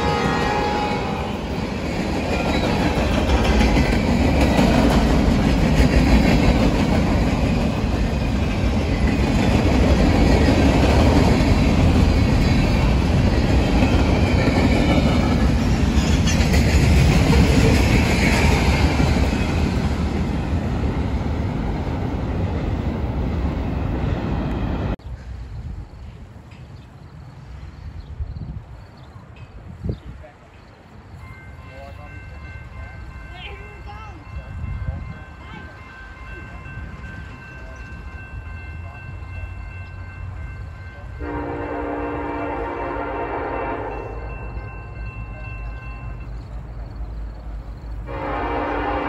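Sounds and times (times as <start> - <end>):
freight train wheels rolling on track: 0.0 - 49.0.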